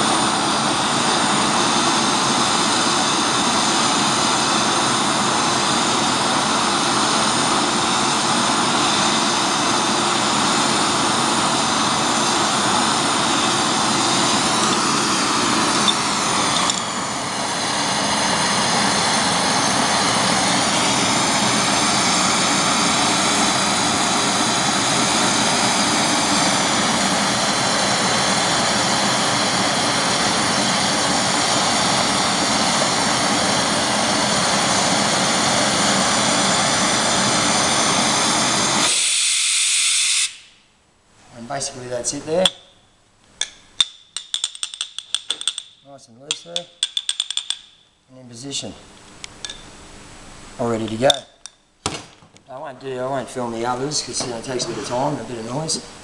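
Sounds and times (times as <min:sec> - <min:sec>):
gas torch hissing: 0:00.0 - 0:40.6, 0:53.1 - 0:56.0.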